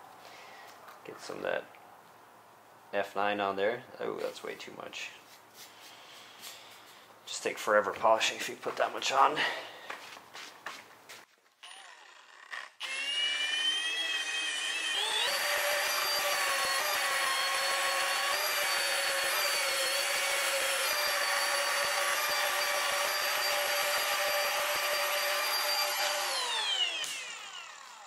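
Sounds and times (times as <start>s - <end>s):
electric polisher motor whine: 11.6s - 28.0s.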